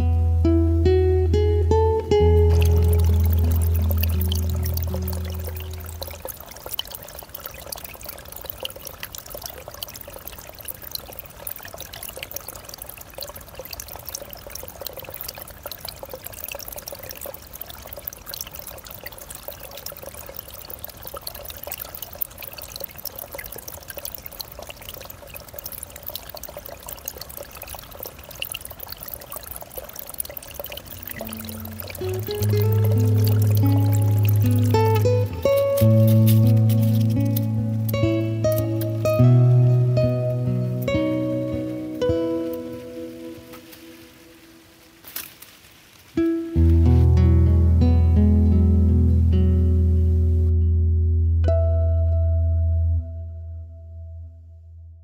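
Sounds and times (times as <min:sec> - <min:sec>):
stream trickling over leaves: 0:00.0 - 0:50.6
water drips and splashes: 0:01.3 - 0:47.8.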